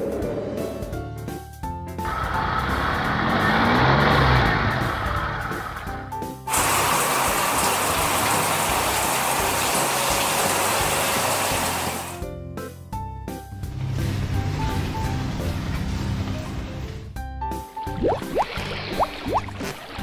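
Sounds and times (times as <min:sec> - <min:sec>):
light background music: 0:00.0 - 0:20.0
water jet spraying: 0:06.5 - 0:12.2.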